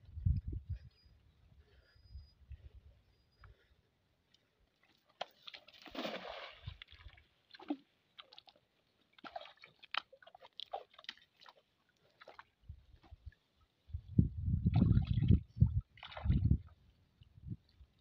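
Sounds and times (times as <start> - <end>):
squelches in wet mud: 4.1 - 13.9
net splashing into water: 5.3 - 8.5.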